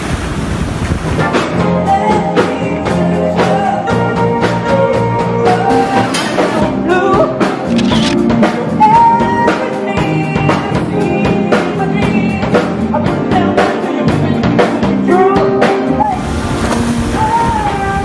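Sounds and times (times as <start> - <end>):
drum kit steady beat: 6.6 - 16.0.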